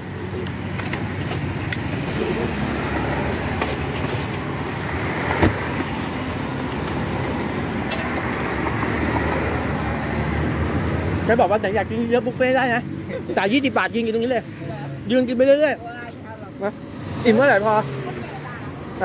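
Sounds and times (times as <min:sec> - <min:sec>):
passing cars rumbling: 0:00.0 - 0:19.0.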